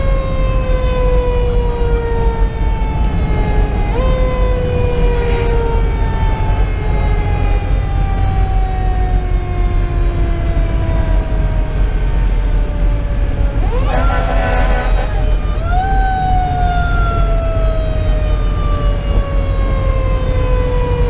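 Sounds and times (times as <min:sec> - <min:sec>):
diesel engine and road rumble: 0:00.0 - 0:21.0
mechanical siren wailing: 0:00.0 - 0:21.0.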